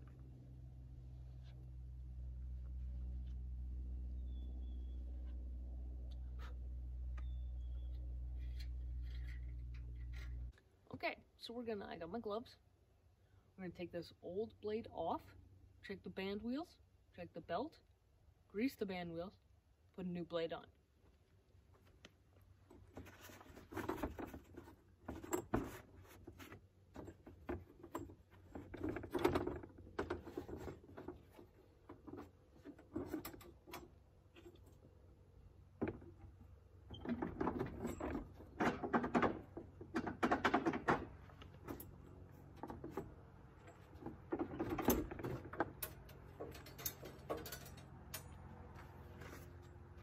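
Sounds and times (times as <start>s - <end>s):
metallic clicks and rattles: 43.6s - 48.5s.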